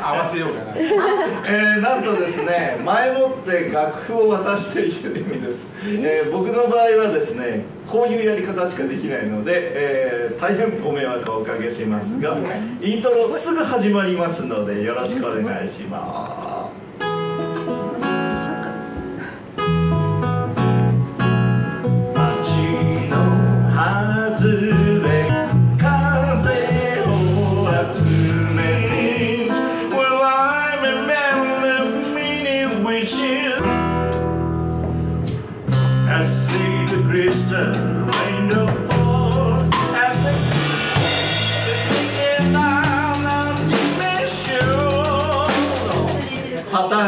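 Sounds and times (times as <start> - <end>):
strummed acoustic guitar: 16.8 - 46.5
live band playing: 16.8 - 46.8
man singing: 22.1 - 34.0, 36.0 - 40.7, 41.3 - 46.5.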